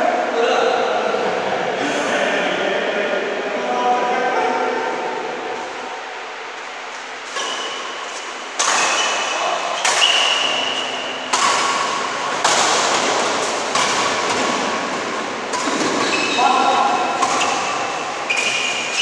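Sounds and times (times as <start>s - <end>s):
rackets hitting shuttlecock: 7.3s - 19.0s.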